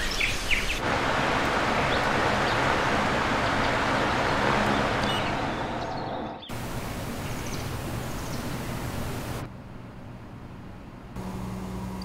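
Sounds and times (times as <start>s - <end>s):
rushing air: 0.4s - 9.5s.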